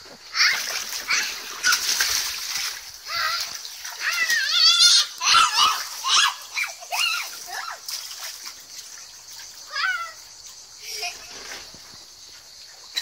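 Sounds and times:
water splashing in paddling pool: 0.0s - 13.0s
girl squealing and shrieking: 0.3s - 2.0s, 3.0s - 7.9s, 9.7s - 10.2s.

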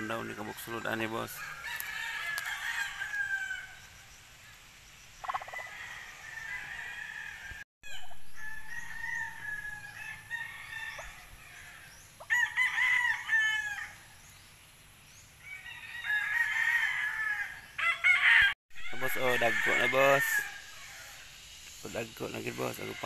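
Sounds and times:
rooster crowing: 1.2s - 3.9s, 5.3s - 14.1s, 15.4s - 21.3s.

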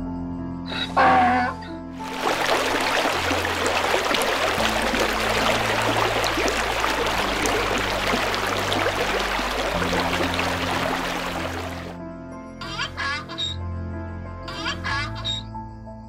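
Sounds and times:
background music low notes: 0.0s - 16.0s
rushing stream water: 2.0s - 12.0s.

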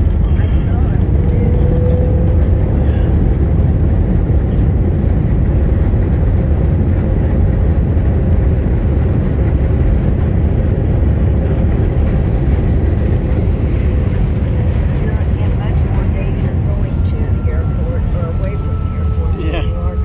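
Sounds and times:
jet cabin low rumble: 0.0s - 20.0s.

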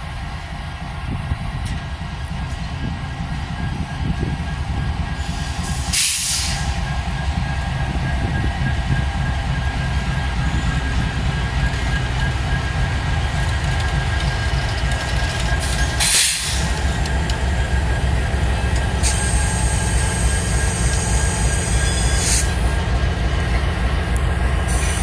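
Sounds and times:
train wheels rumbling on rail: 0.0s - 25.0s
wheel squeal: 19.0s - 22.6s.

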